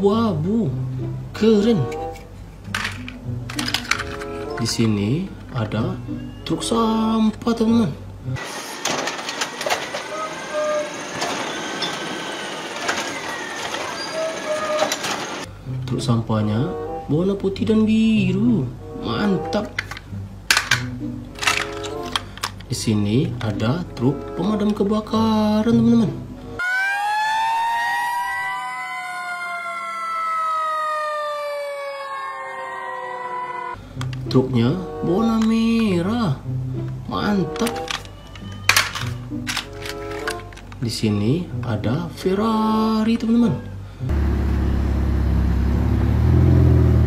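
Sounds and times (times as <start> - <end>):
clattering: 1.9 - 5.0, 8.8 - 15.5, 19.6 - 22.7, 37.5 - 40.8
fire engine sirens wailing: 8.4 - 15.5, 26.6 - 33.8
hydraulic arm lifting: 8.4 - 15.5
garbage truck running: 8.4 - 15.6, 44.1 - 47.0.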